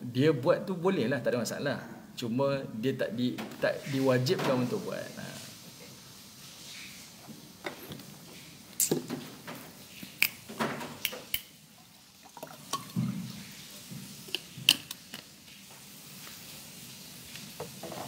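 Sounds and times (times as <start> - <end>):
water pouring into glass: 11.8 - 13.4.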